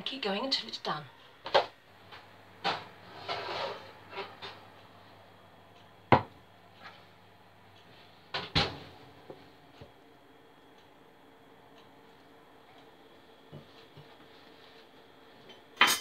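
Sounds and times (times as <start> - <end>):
ceramic dish knocking on wood: 6.1 - 6.3.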